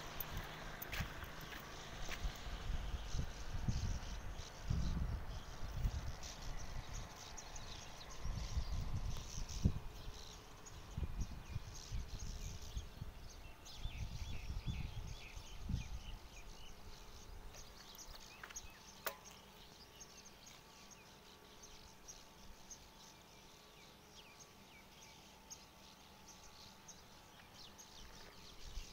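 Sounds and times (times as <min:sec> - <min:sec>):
wind buffeting microphone: 0:00.0 - 0:17.0
sharp click: 0:19.0 - 0:19.4.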